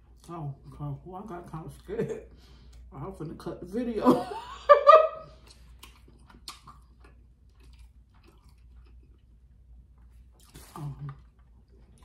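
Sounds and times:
woman chewing food: 5.2 - 12.0.

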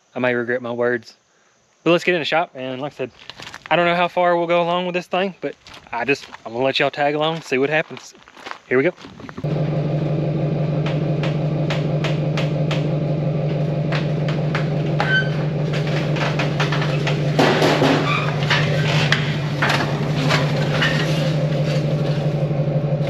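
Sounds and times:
low mechanical hum: 9.1 - 23.0
vehicle rolling down steel ramps: 9.3 - 23.0
loud clatter: 9.4 - 23.0
knocks and clanks from ramps: 10.7 - 22.4.

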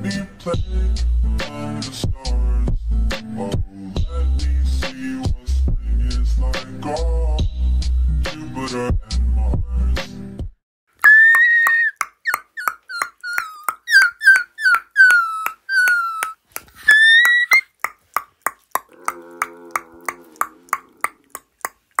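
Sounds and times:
dog whining: 11.0 - 17.7.

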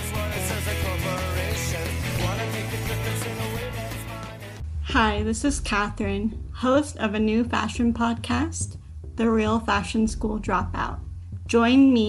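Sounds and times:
guitar music: 0.0 - 4.6.

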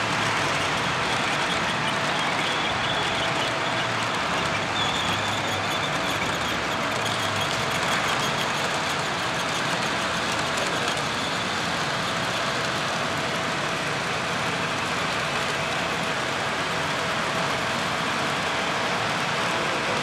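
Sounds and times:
model train rumbling on track: 0.0 - 20.0.

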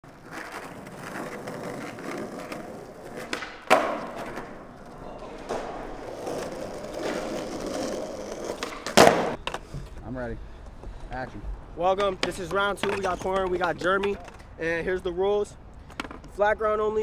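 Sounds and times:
skateboard wheels rolling: 0.0 - 15.2, 15.8 - 16.5
skateboard clacking: 0.1 - 9.8, 11.9 - 14.4, 15.9 - 16.4.

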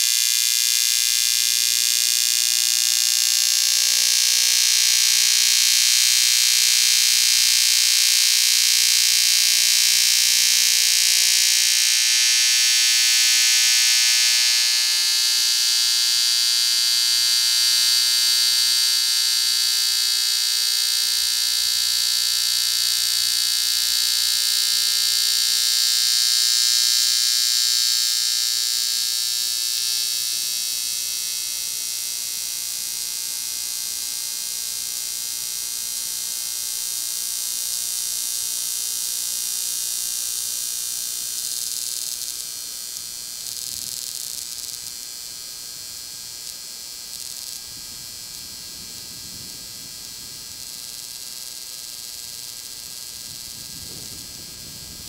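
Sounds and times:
dense electrical buzz: 0.0 - 55.0
high hiss: 33.8 - 55.0.

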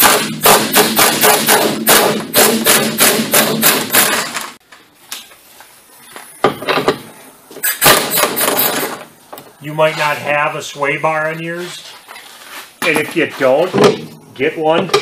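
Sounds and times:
pneumatic impact wrench hammering: 0.0 - 4.6, 6.4 - 9.1.

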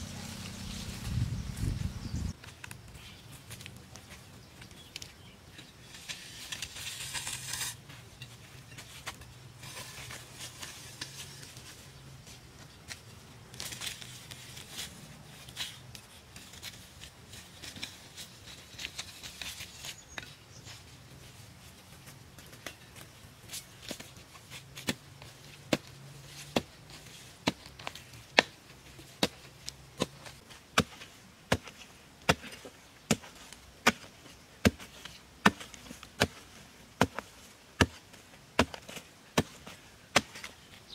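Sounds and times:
metal blade scraping grass and soil: 0.0 - 3.2, 4.8 - 12.0, 12.8 - 40.9
digging tool striking earth: 5.8 - 7.8, 22.5 - 40.9.

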